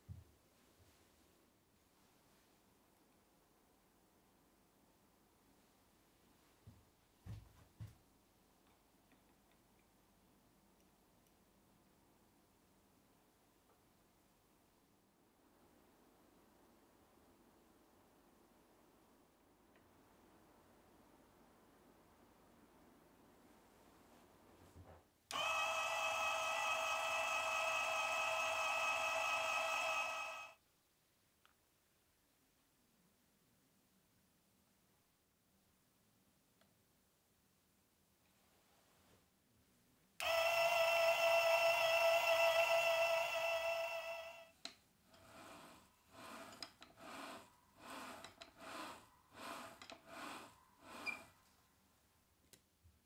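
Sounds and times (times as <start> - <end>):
drill press motor whine: 25.3 - 30.6, 40.2 - 44.4.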